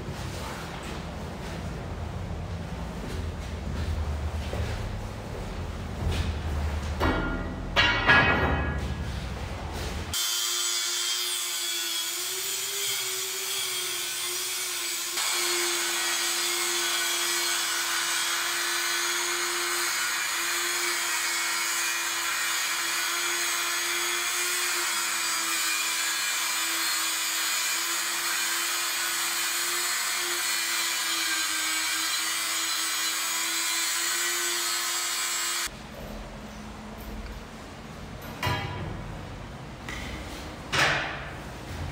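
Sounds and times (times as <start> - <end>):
angle grinder cutting metal pipe: 10.2 - 35.7.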